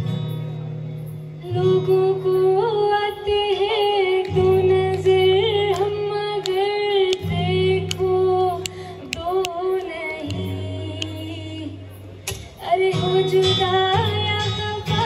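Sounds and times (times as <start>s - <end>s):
acoustic guitar chords: 0.0s - 15.0s
woman singing long notes: 2.0s - 11.8s.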